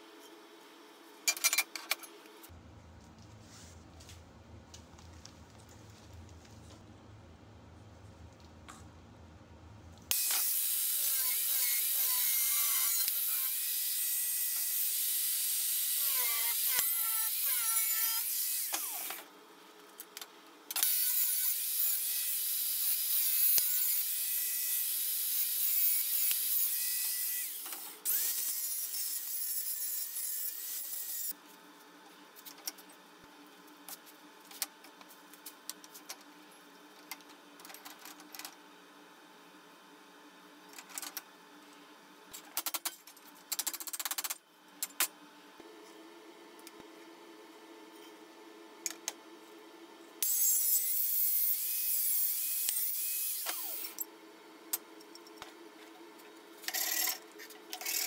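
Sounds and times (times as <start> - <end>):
angle grinder cutting metal: 10.1 - 19.2, 20.8 - 31.3, 50.2 - 54.0.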